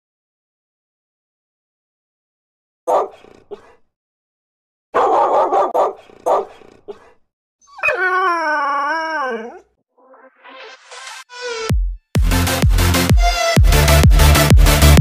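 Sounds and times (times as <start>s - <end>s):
dog barking: 2.9s - 3.8s, 4.9s - 7.2s
dog howling: 7.6s - 10.2s.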